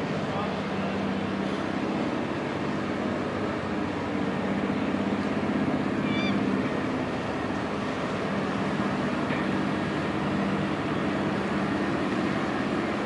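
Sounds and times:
boat engine idling: 0:00.0 - 0:13.0
high-pitched call: 0:06.0 - 0:06.4.

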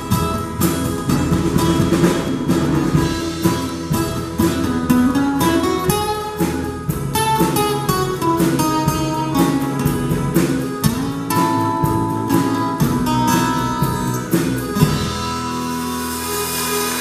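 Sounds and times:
accordion: 0:00.0 - 0:17.0
acoustic guitar strumming: 0:00.0 - 0:17.0
bass guitar: 0:00.0 - 0:17.0
drums: 0:00.0 - 0:17.0
electric guitar: 0:00.0 - 0:17.0.

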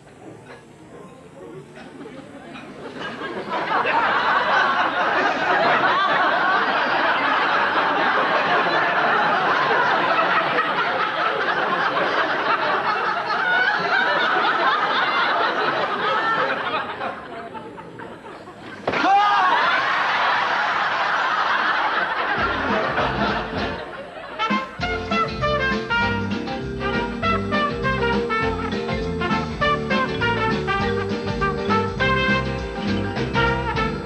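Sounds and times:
audience laughing: 0:01.8 - 0:25.7.

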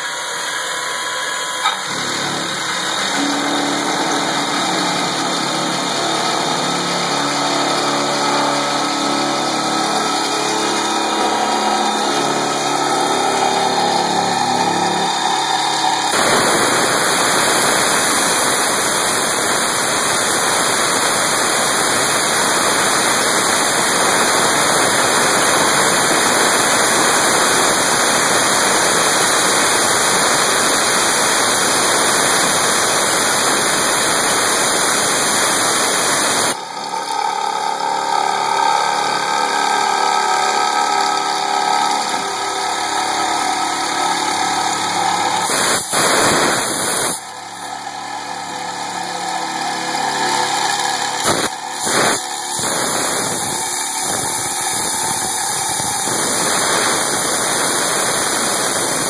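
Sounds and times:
milling machine whining: 0:00.0 - 0:59.0
compressed air hissing: 0:01.6 - 0:36.6, 0:45.4 - 0:47.7, 0:51.2 - 0:59.0.

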